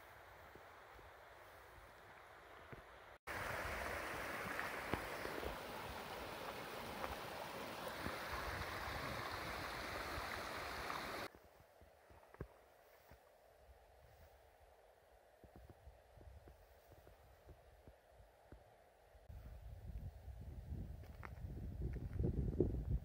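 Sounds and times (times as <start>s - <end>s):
stream running over stones: 0.1s - 11.3s.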